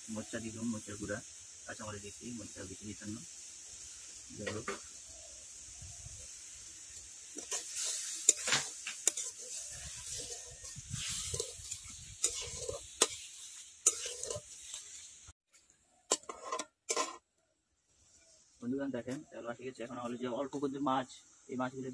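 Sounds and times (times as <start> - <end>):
paste sizzling in hot oil: 0.0 - 17.2
metal spatula scraping pan: 7.4 - 15.0, 16.1 - 17.2.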